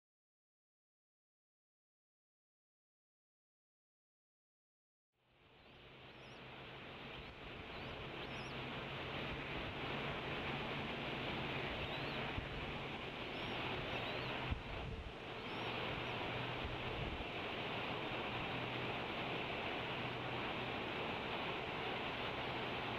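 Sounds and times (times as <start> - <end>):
low electrical hum: 5.2 - 22.9
microphone hiss: 5.3 - 22.9
faint high bird chirps: 5.6 - 6.5, 7.1 - 8.7, 11.6 - 12.4, 13.2 - 16.4.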